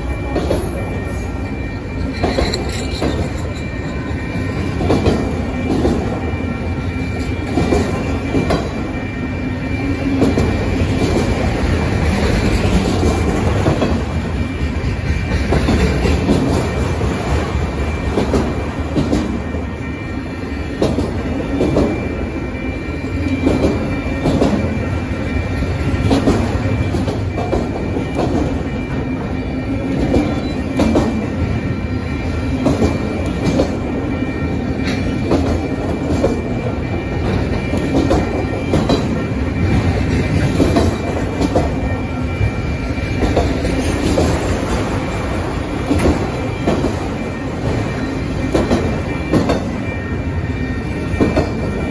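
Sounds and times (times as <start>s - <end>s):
freight cars rumbling: 0.0s - 51.9s
wheels clacking over rail joints: 2.0s - 3.9s, 25.8s - 31.4s, 32.5s - 42.2s, 43.1s - 50.0s.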